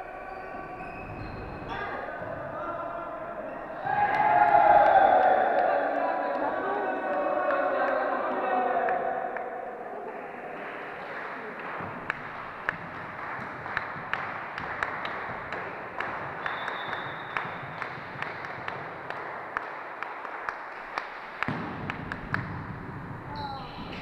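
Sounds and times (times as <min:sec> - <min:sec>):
sports hall background noise: 0:00.0 - 0:24.0
volleyballs smacking and bouncing: 0:11.6 - 0:24.0.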